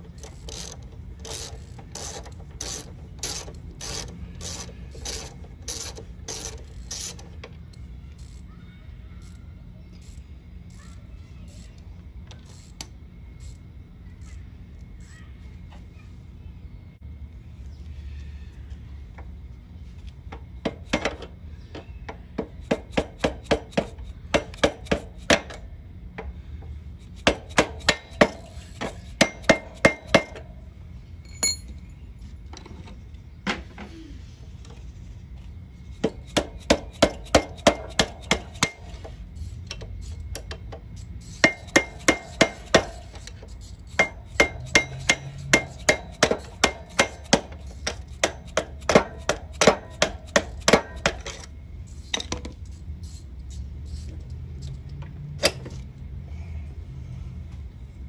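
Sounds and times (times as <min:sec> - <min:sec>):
hammer striking metal: 0:27.2 - 0:30.4, 0:41.4 - 0:43.1, 0:44.0 - 0:51.4.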